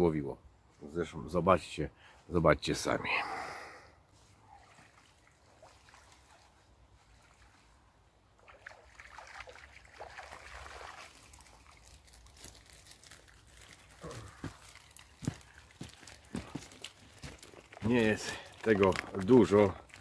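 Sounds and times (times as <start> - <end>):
water trickling and splashing: 4.3 - 20.0.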